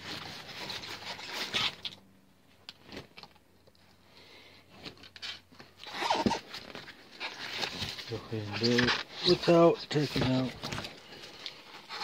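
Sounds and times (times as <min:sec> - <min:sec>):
rubber rubbing and scraping: 0:00.0 - 0:02.0, 0:04.8 - 0:12.0.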